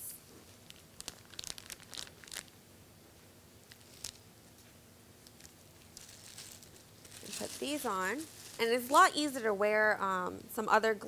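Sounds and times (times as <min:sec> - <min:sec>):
glove wrapper crinkling: 0:00.3 - 0:02.6, 0:03.6 - 0:04.3, 0:05.2 - 0:09.2.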